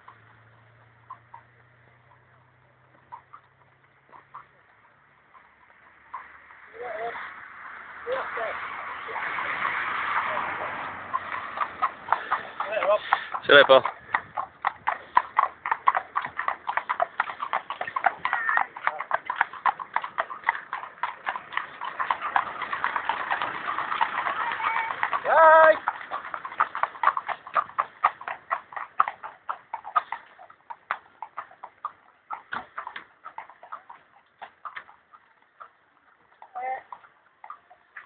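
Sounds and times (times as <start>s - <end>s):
horses hooves clip-clopping: 0.0s - 38.0s
person calling out: 24.6s - 25.8s.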